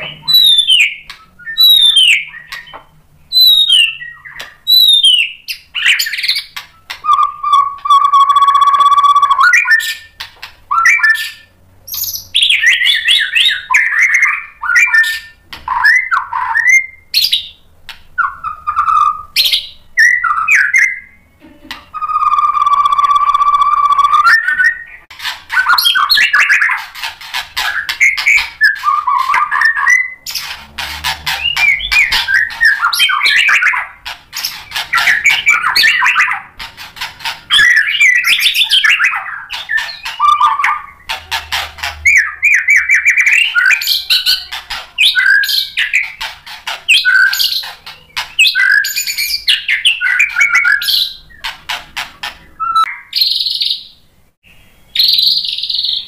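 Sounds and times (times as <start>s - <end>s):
bird singing whistles and chatters: 0.0s - 17.6s, 18.2s - 21.2s, 21.9s - 26.9s, 27.6s - 30.6s, 31.3s - 46.3s, 46.9s - 51.5s, 52.6s - 54.0s.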